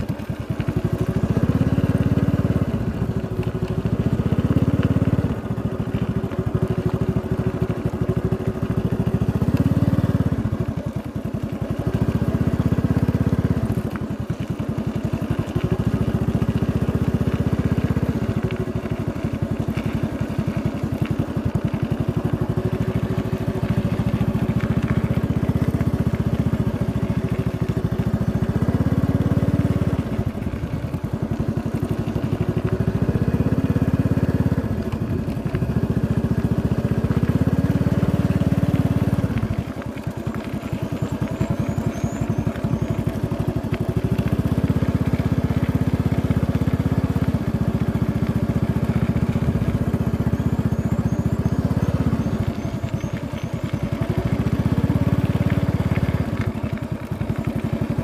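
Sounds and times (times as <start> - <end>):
vehicle engine rumble: 0.0 - 58.0.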